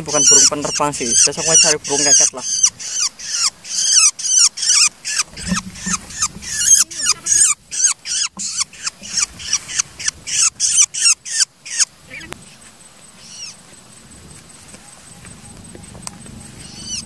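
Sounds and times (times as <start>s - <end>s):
shrike shrill harsh calls: 0.0s - 12.3s, 13.2s - 13.6s, 16.4s - 17.0s.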